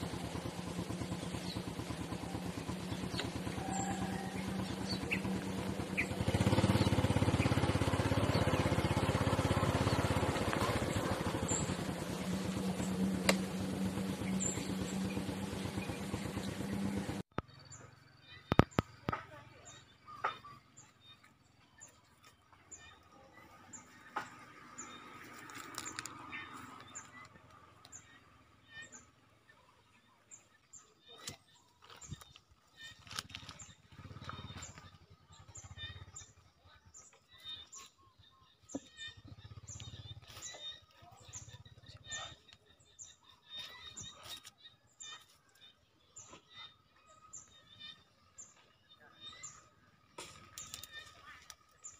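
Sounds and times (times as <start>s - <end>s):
pulsing motor hum: 0.0s - 51.9s
high bird chirps: 0.4s - 51.9s.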